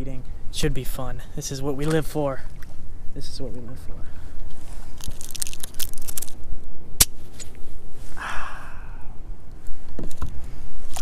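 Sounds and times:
sharp crack: 7.0s - 7.5s.

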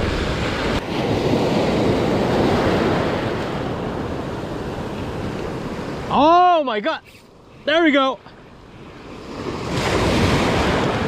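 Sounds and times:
wind rumbling on microphone: 0.0s - 6.1s, 8.6s - 11.0s
ocean surf washing onto beach: 0.0s - 11.0s.

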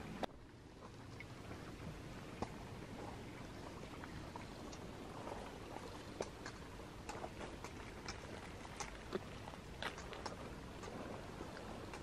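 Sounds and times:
quiet ticks and clicks: 9.8s - 11.0s.

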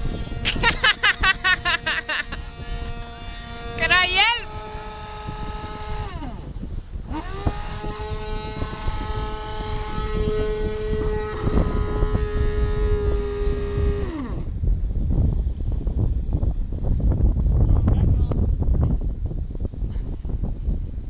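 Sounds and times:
electric motor whine: 0.0s - 16.3s
wind and waves rumble: 0.0s - 21.0s.

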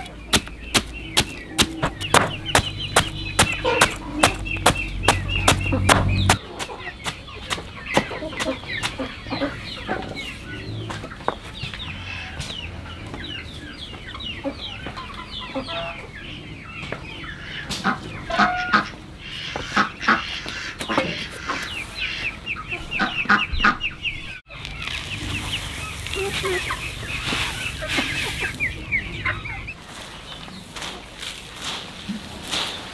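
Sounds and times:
chickens clucking: 0.0s - 32.9s
sharp knocks: 0.3s - 9.0s.

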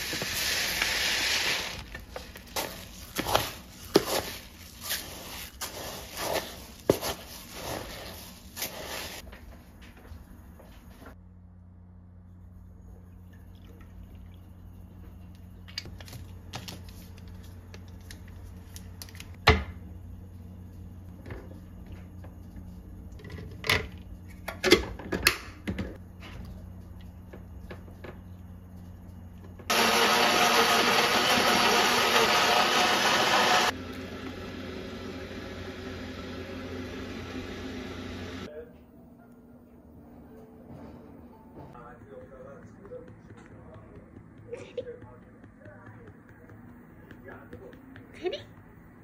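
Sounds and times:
blender running: 29.7s - 38.5s.

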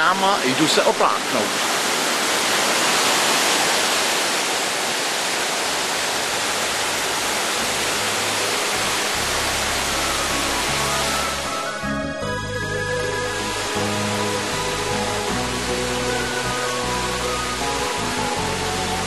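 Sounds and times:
waterfall rushing over rocks: 0.0s - 19.0s
music: 6.6s - 19.0s.

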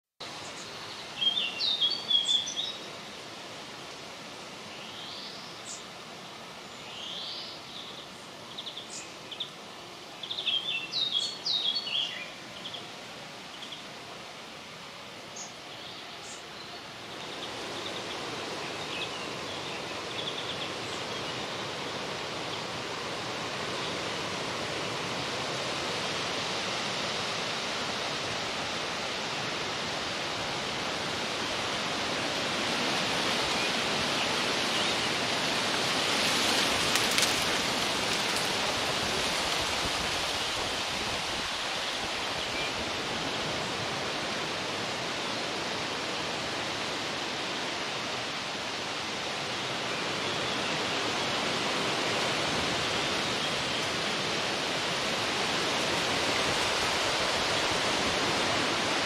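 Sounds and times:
wind rustling through leaves: 0.0s - 59.0s
small birds chirping: 0.3s - 2.9s.

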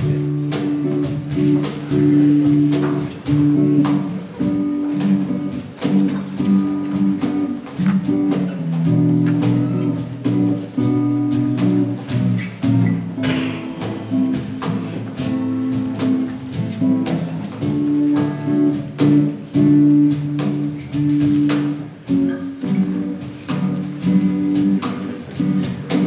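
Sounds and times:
acoustic guitars strumming chords: 0.0s - 26.0s
sharp percussion hits: 13.2s - 14.5s.

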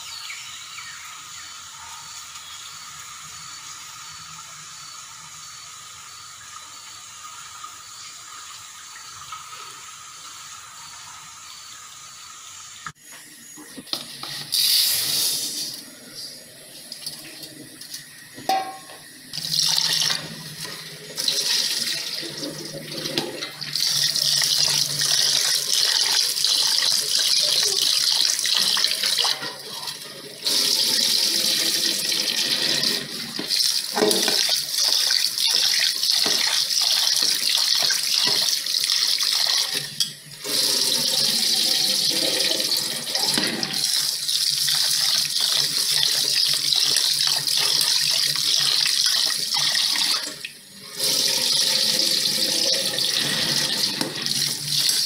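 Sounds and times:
tap water running into steel bowl: 16.9s - 55.0s.

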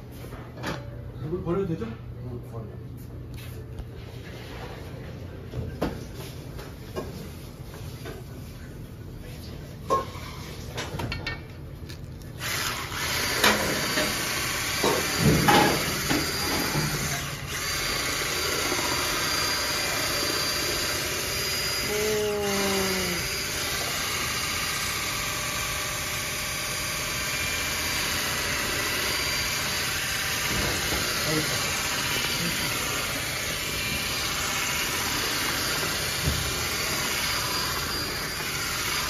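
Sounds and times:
electric hand mixer running: 12.4s - 39.0s.

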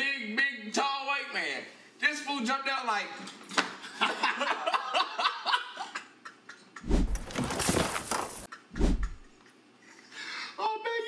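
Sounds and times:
men laughing hard: 3.9s - 6.9s
rustling and bumping on microphone: 6.8s - 9.3s.

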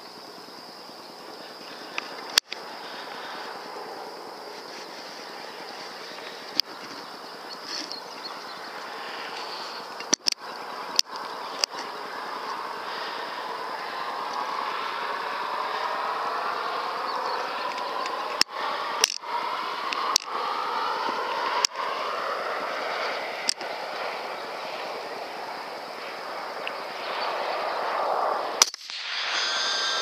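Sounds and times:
steady background hiss: 0.0s - 30.0s
small sharp clicks: 1.9s - 2.6s, 9.4s - 11.9s, 17.7s - 19.2s, 19.9s - 20.3s, 23.4s - 23.7s, 28.6s - 29.1s
rifle shot: 28.6s - 30.0s.

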